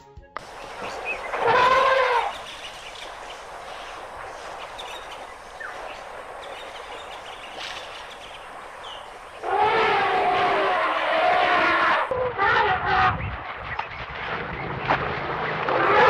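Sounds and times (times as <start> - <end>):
faint bird chirps: 0.4 - 9.4
outdoor background hiss: 0.4 - 12.1
elephant trumpeting: 0.6 - 6.3, 9.0 - 13.1.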